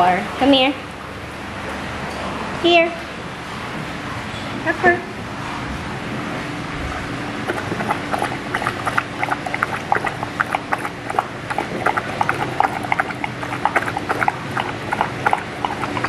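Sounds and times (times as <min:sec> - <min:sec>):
dogs lapping water from bowl: 0:07.4 - 0:16.0.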